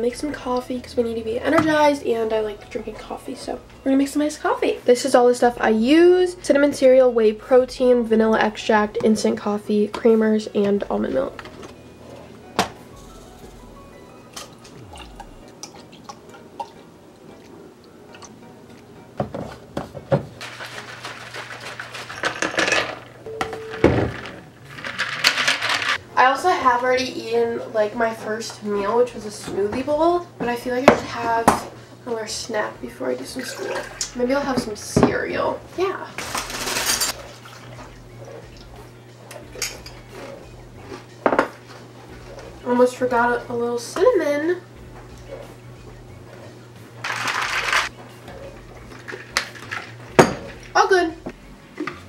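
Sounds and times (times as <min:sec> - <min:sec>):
shaker bottle rattling and splashing: 0:20.4 - 0:22.9, 0:24.0 - 0:26.0, 0:36.2 - 0:37.8, 0:47.0 - 0:47.9, 0:48.9 - 0:50.0
dishes clinking: 0:48.9 - 0:50.8.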